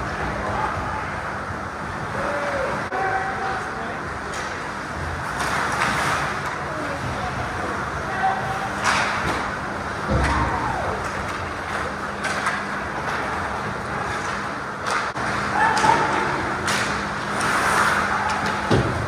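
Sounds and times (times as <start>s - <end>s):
steady rink hum: 0.0s - 19.0s
sticks and puck clacking: 8.8s - 9.5s, 11.0s - 19.0s
skates scraping on ice: 17.3s - 18.2s.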